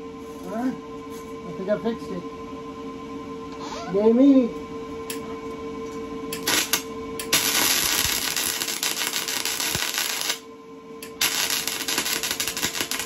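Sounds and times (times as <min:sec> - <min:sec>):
welding arc crackling: 0:06.3 - 0:10.4, 0:11.0 - 0:13.0.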